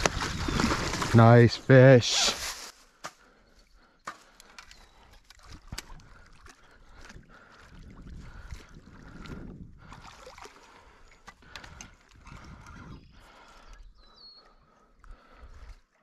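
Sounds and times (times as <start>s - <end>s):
fish splashing in water: 9.8s - 11.0s.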